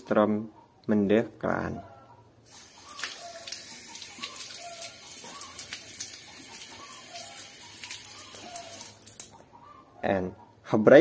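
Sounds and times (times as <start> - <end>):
tap water splashing over hands: 3.0 - 9.3.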